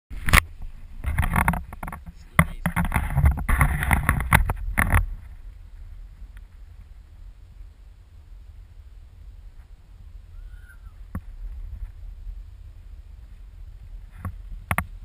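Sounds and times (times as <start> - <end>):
wind rumble on microphone: 0.1 - 15.0
camera handling rubbing and knocking: 0.2 - 5.4, 14.1 - 15.0.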